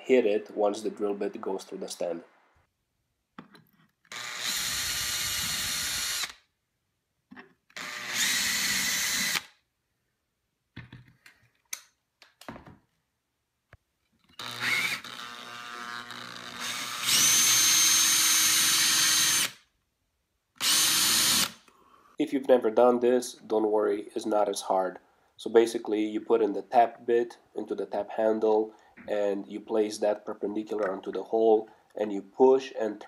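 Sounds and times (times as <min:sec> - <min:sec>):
cordless drill whining: 0:04.1 - 0:06.4, 0:07.7 - 0:09.6, 0:14.3 - 0:19.6, 0:20.6 - 0:21.6.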